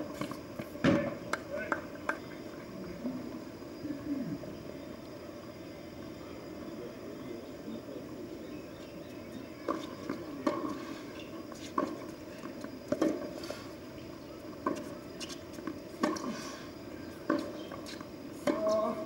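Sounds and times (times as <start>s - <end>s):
tennis ball bouncing on hard court: 16.0s - 16.2s, 17.2s - 18.9s
tennis ball struck by rackets: 16.0s - 16.3s, 17.2s - 18.8s.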